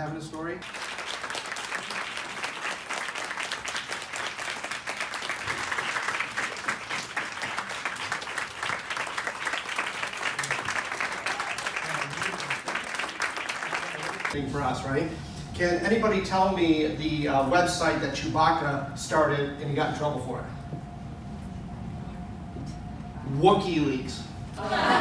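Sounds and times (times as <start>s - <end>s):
audience applauding: 0.6s - 14.4s.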